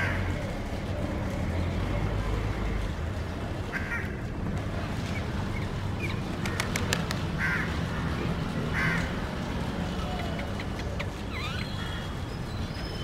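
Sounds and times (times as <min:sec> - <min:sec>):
sharp clicks: 0:06.3 - 0:07.3
harsh bird calls: 0:10.0 - 0:13.0.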